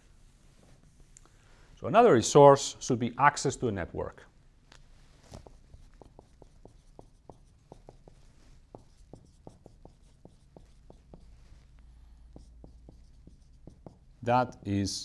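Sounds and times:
marker writing on whiteboard: 5.3s - 14.6s.

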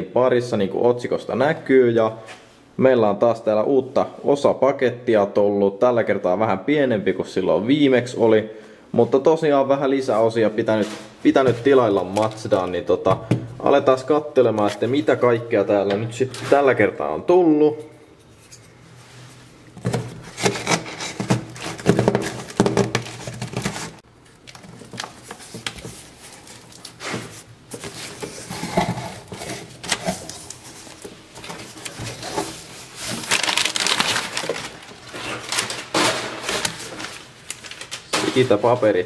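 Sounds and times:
packing paper crinkling: 19.8s - 38.9s.

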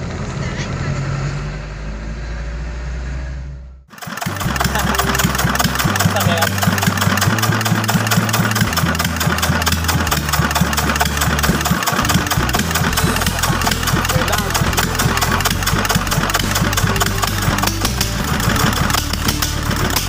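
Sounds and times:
low drone: 0.0s - 20.0s
diesel engine clattering: 3.9s - 20.0s.

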